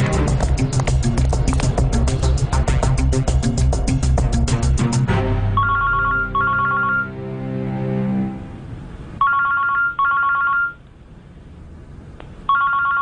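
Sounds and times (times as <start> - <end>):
music held notes: 0.0 - 9.1
telephone ringing electronic trills: 5.6 - 7.2, 9.2 - 10.8, 12.5 - 13.0.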